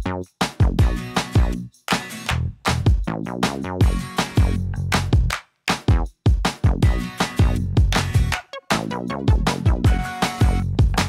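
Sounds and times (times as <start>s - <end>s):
electronic music with beat: 0.0s - 11.0s.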